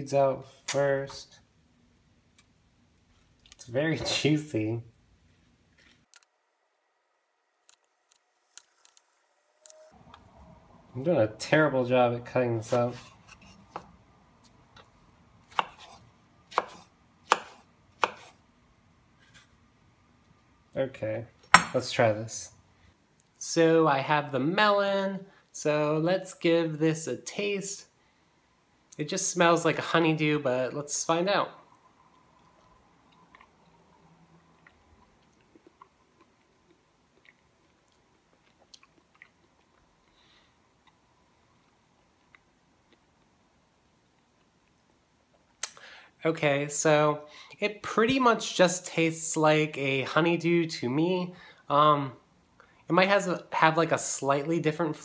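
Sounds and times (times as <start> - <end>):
knife chopping on wooden board: 15.5 - 18.3, 21.6 - 21.8
soft chewing mouth clicks: 34.5 - 40.2.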